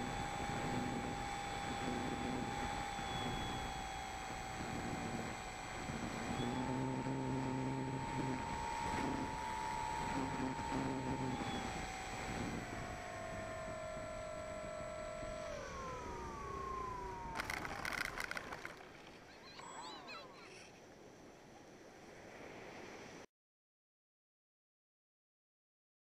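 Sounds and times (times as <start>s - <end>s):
electric motor and propeller whining: 0.0s - 20.5s.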